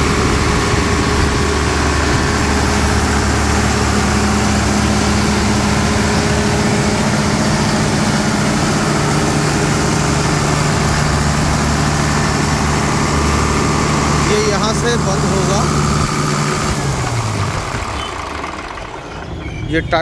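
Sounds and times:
diesel generator engine running: 0.0 - 20.0.

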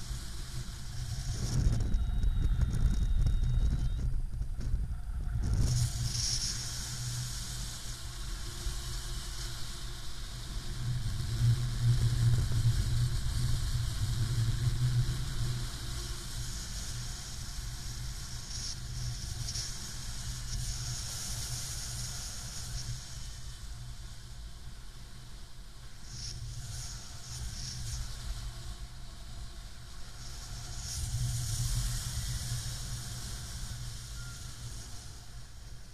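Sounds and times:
wind buffeting microphone: 0.6 - 6.2.

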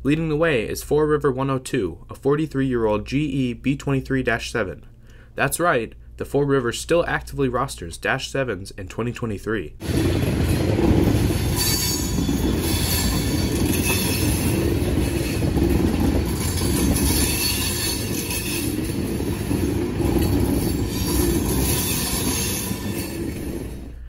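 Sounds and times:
train wheels rumbling on rail: 9.8 - 24.0
wheel squeal: 9.8 - 24.0.

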